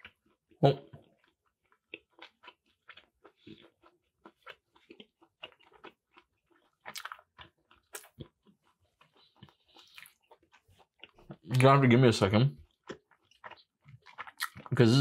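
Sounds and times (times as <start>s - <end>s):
person chewing: 0.0s - 11.7s, 12.6s - 15.0s.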